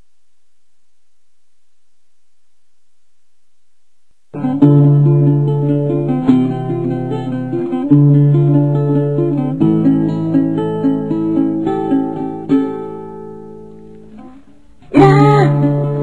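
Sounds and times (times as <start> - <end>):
slow picked guitar: 4.4 - 16.0.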